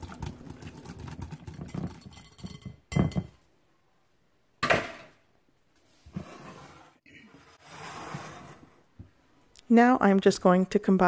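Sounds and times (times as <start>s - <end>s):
whisk beating in glass bowl: 0.0s - 2.8s.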